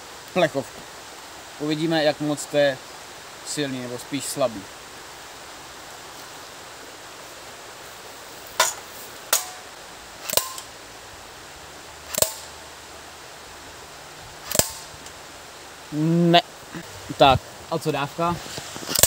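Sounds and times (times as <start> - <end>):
airsoft pistol shots: 10.2 - 10.7, 12.1 - 12.5, 14.5 - 14.9.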